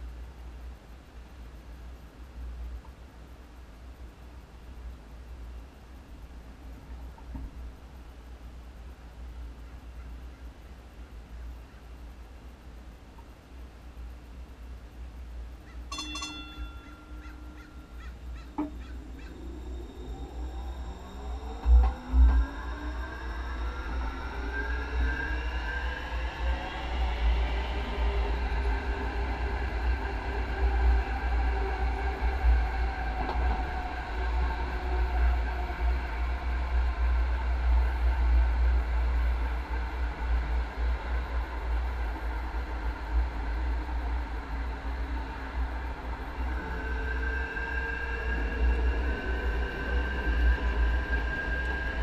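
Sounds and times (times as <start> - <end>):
train whine rising in pitch: 15.8 - 52.0.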